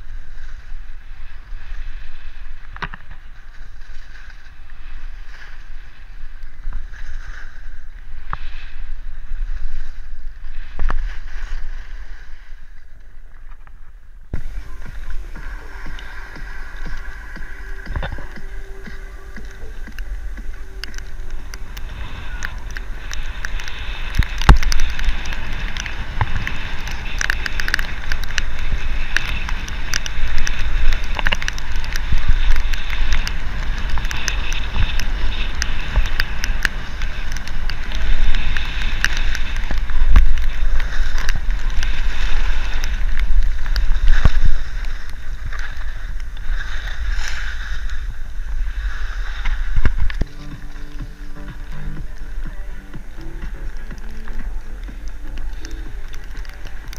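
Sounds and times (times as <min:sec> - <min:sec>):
skis sliding on packed snow: 0:00.0 - 0:56.9
wind buffeting microphone: 0:13.1 - 0:56.9.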